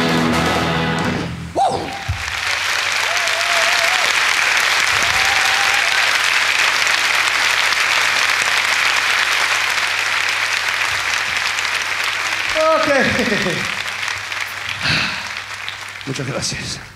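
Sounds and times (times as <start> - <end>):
audience clapping: 1.7 - 16.9.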